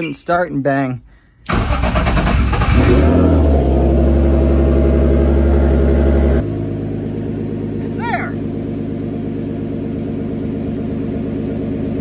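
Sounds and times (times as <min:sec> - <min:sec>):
starter motor cranking: 0:01.5 - 0:03.1
car engine revving and idling: 0:01.5 - 0:12.0.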